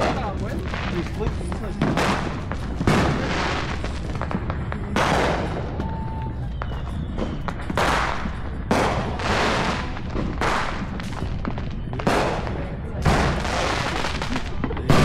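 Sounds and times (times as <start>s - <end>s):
distant fireworks rumble: 0.0s - 15.0s
fireworks booming with echo: 0.0s - 15.0s.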